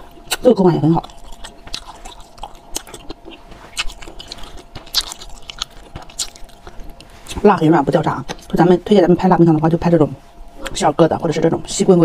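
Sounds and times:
wet chewing mouth clicks: 0.2s - 7.4s.

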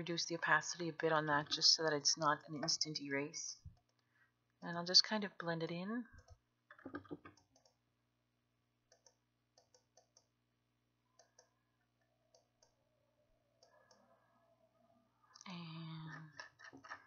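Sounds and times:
computer mouse clicks: 6.2s - 7.8s, 8.9s - 10.3s.

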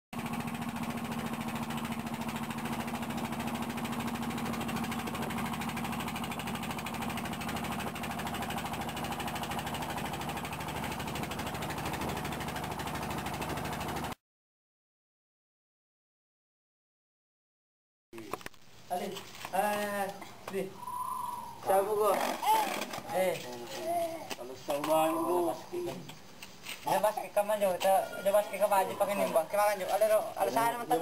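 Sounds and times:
boat engine running: 0.2s - 14.2s.

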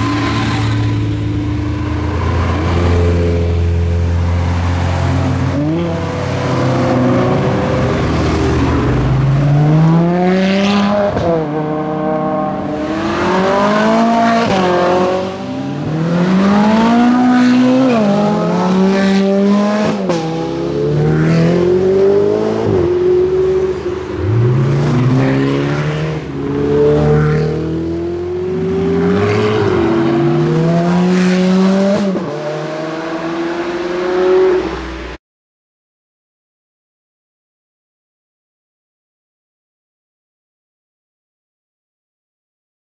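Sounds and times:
sports cars accelerating through gears: 5.2s - 35.0s.

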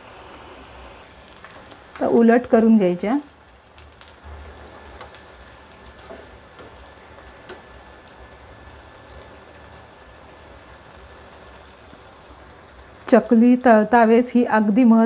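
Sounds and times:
food deep-frying in hot oil: 0.0s - 15.0s
small crackles of oil: 3.4s - 8.3s.

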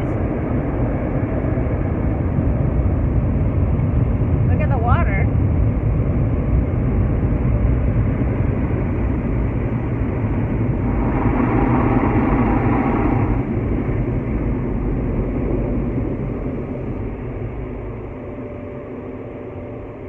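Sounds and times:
car wash machinery rushing: 9.6s - 17.0s.

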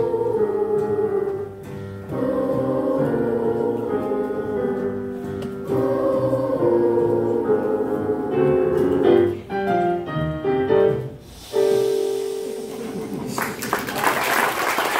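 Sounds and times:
children's choir singing: 0.0s - 9.6s
piano: 0.0s - 14.9s.

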